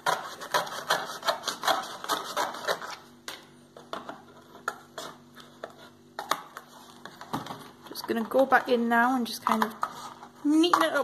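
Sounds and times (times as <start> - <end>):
scissors snipping cardboard: 0.0 - 2.9.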